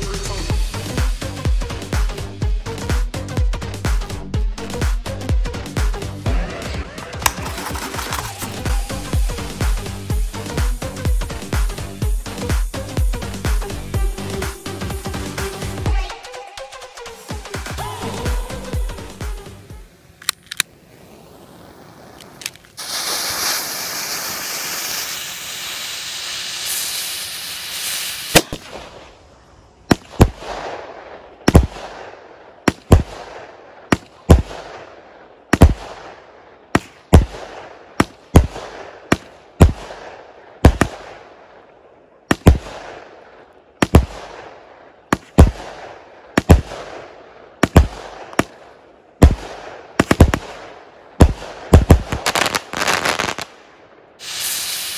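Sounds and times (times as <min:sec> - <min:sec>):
firework fuse hissing: 0:07.2 - 0:13.4, 0:19.9 - 0:29.4, 0:52.0 - 0:53.5, 0:54.2 - 0:54.9
firework bangs: 0:20.9 - 0:29.2, 0:35.5 - 0:41.2, 0:43.8 - 0:48.6, 0:49.2 - 0:53.6, 0:54.2 - 0:54.9.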